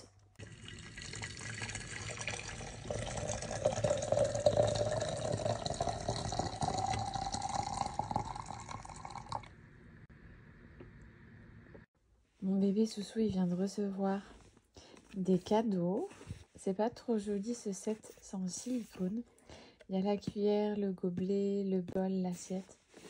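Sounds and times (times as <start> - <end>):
hot water pouring into teapot: 0.4 - 9.6.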